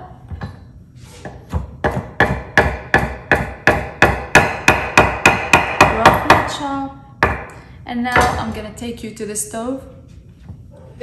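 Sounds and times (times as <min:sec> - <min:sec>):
knife chopping on wooden board: 0:01.2 - 0:06.5.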